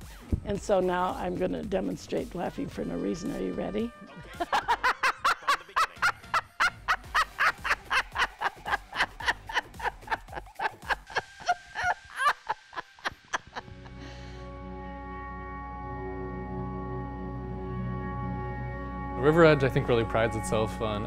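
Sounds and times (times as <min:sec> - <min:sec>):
woman laughing heartily: 0:04.1 - 0:14.3.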